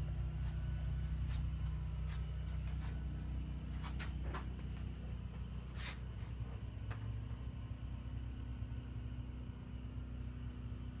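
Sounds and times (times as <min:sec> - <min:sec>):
low room hum: 0:00.0 - 0:11.0
short rustle: 0:05.6 - 0:06.4.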